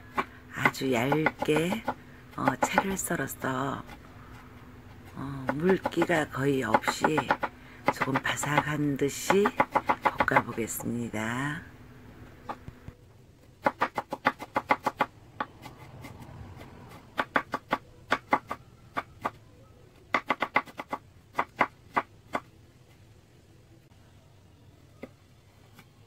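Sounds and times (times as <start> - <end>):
knife chopping on wooden board: 0.1 - 3.0, 5.5 - 8.7, 9.3 - 10.6.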